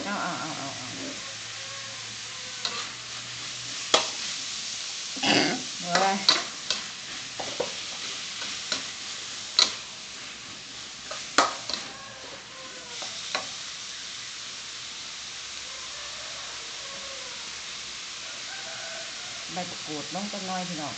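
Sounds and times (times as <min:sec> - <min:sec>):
meat sizzling in a wok: 0:00.0 - 0:20.9
metal spatula scraping a pan: 0:02.5 - 0:04.4, 0:05.2 - 0:13.6.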